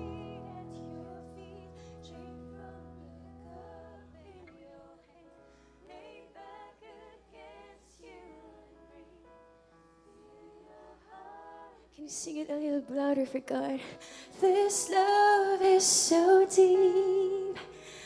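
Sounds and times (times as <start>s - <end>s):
congregation singing: 0.0s - 12.4s.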